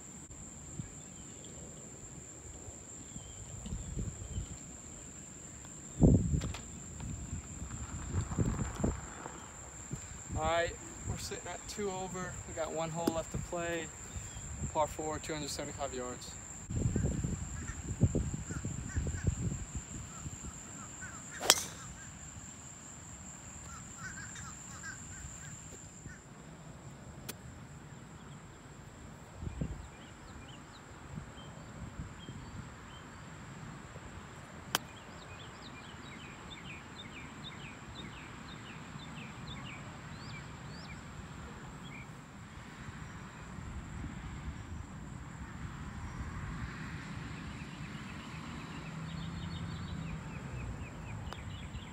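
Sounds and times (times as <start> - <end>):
golf club striking ball: 21.4 - 22.0.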